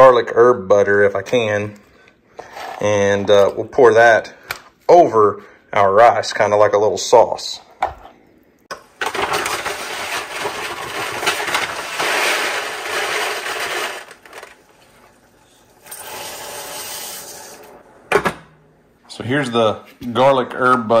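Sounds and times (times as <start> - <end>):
dry rice pouring: 9.7 - 14.2.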